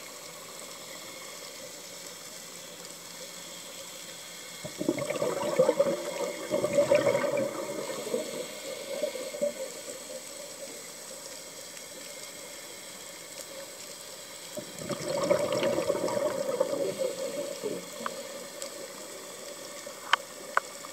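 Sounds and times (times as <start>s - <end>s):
low steady hiss: 0.0s - 20.9s
underwater exhaled bubbles gurgling: 4.6s - 11.3s, 14.5s - 20.9s.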